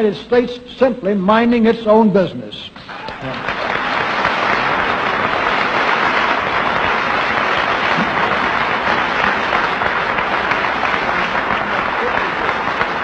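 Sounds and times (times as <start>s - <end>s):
audience applauding: 2.9s - 13.0s.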